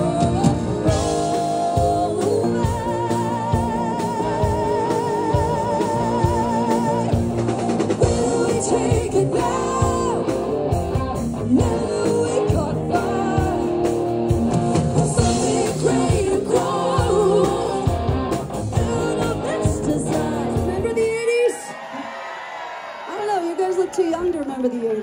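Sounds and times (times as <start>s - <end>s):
woman singing with vibrato: 0.0s - 10.4s, 11.5s - 13.7s, 15.1s - 18.0s, 18.7s - 21.7s
drum kit: 0.0s - 21.2s
electric guitars: 0.0s - 21.6s.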